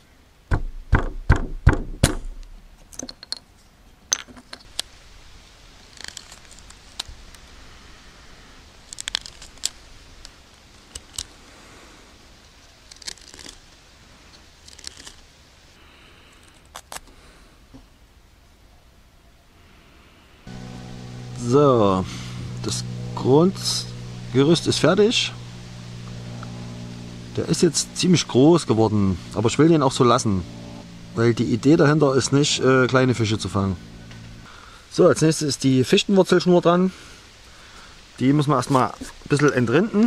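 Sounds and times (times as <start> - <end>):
knocks against wooden bench: 0.5 - 2.4
knife whittling wood: 12.9 - 13.6, 14.6 - 15.2.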